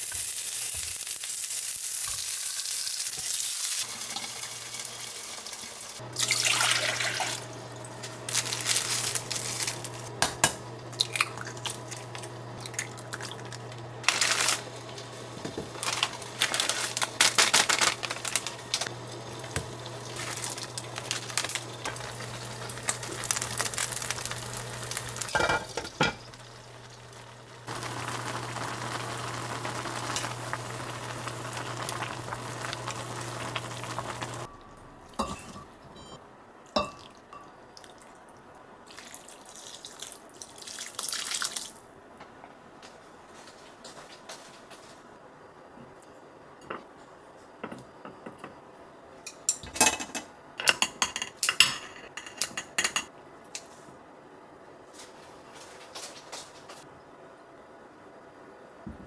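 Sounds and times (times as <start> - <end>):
noodles bubbling in saucepan: 0.0 - 35.8
cooktop hum: 0.0 - 39.4, 41.7 - 59.0
noodles poured into bowls: 8.3 - 10.1, 12.8 - 15.0, 15.7 - 18.9
plastic packet crinkling and tearing: 8.3 - 10.1, 14.0 - 14.8, 15.7 - 18.9, 20.2 - 25.1.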